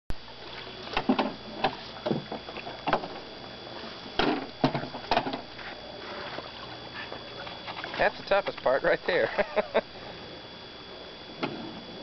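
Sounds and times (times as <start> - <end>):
oars splashing in water: 6.4 - 8.2.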